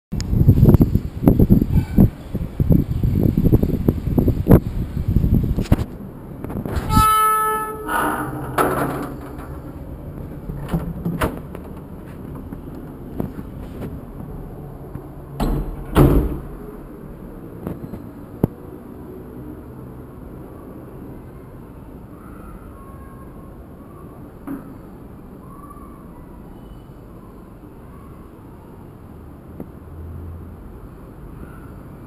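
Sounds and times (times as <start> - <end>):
gate hinge squealing: 6.8 - 9.9
door bump: 10.4 - 13.0, 15.4 - 16.6
door unlocking clicks and knocks: 15.4 - 16.6.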